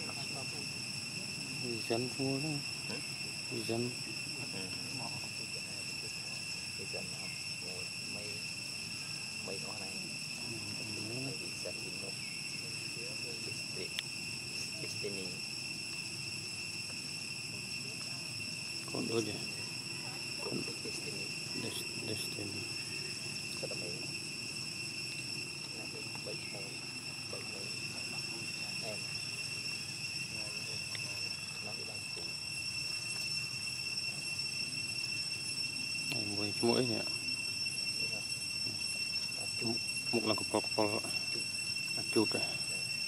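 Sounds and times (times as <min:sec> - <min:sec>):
insect chorus drone: 0:00.0 - 0:43.0.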